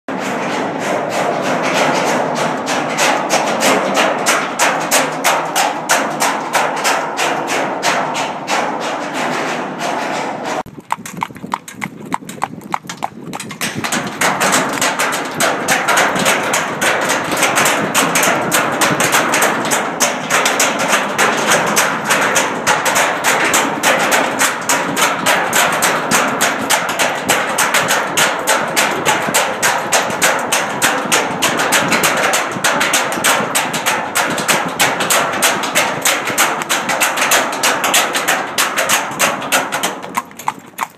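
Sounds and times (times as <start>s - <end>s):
cart wheels rolling on grating: 0.1s - 40.9s
horse hooves trotting on steel grate: 0.1s - 40.9s.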